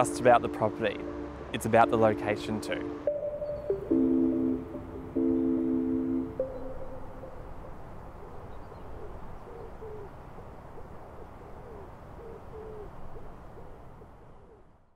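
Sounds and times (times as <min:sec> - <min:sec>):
soft breathy music notes: 0:00.0 - 0:08.4.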